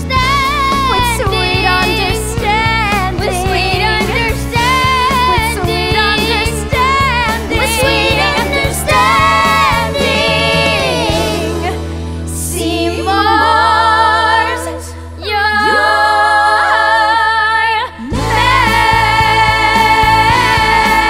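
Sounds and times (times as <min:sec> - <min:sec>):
woman and boy singing duet: 0:00.0 - 0:11.8
band accompaniment: 0:00.0 - 0:12.3, 0:18.2 - 0:21.0.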